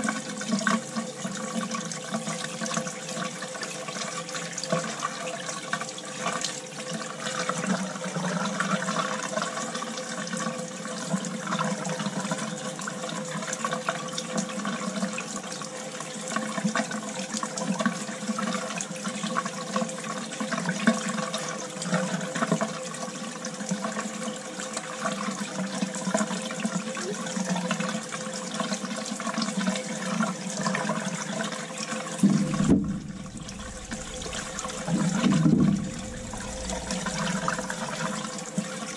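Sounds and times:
steady hum: 32.2 - 38.9
water splashing into a bucket: 32.2 - 38.9.

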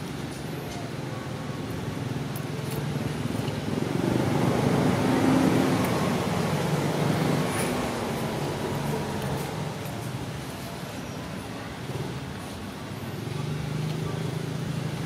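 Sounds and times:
vehicle engine passing: 2.6 - 9.9.

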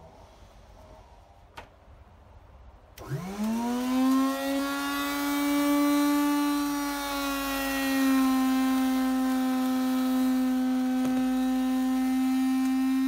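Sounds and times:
grain mill motor whining: 3.0 - 13.0.

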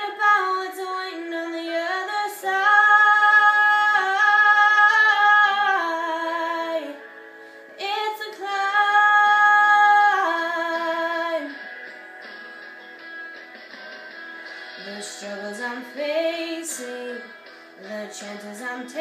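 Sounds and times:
woman singing pop ballad: 0.0 - 7.0, 7.8 - 11.7, 14.8 - 19.0.

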